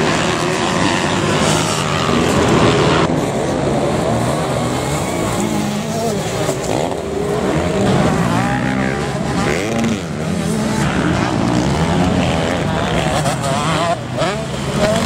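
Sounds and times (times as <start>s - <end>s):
motocross bike engines revving: 0.0s - 15.0s.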